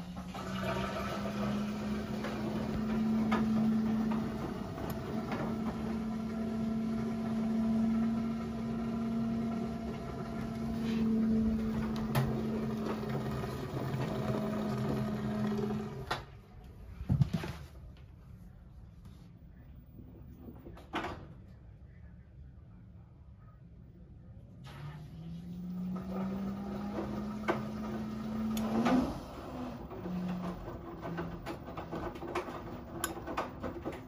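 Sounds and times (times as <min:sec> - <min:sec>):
washing machine motor hum: 0:00.0 - 0:17.0, 0:24.6 - 0:34.0.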